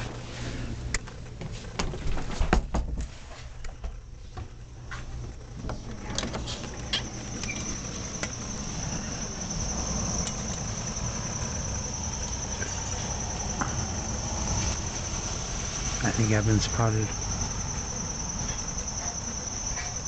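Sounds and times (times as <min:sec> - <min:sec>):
high-pitched insect trill: 0:05.7 - 0:20.0.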